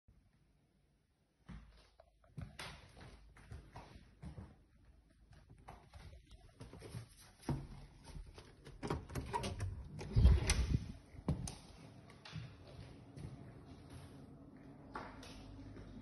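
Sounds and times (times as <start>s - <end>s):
footsteps: 10.9s - 16.0s.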